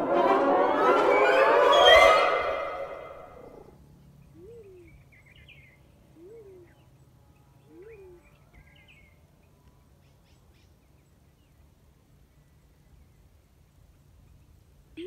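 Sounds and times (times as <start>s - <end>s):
small birds chirping: 3.6s - 11.7s
dove hooting: 4.3s - 5.1s, 6.1s - 6.8s, 7.7s - 8.4s.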